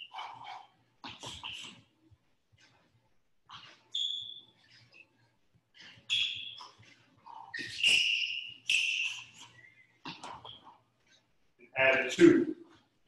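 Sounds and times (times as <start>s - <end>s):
sneaker squeaks on wooden floor: 0.0s - 1.8s, 3.5s - 10.8s.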